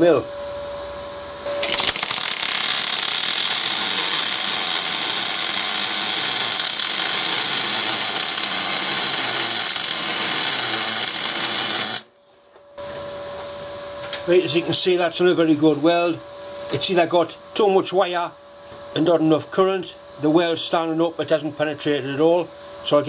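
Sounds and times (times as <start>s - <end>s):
welding arc hissing: 1.6s - 12.2s.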